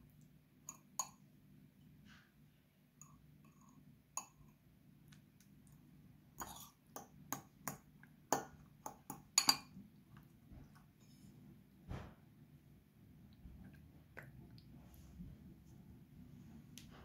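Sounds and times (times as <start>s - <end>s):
fork tapping ceramic bowl: 6.4s - 9.7s.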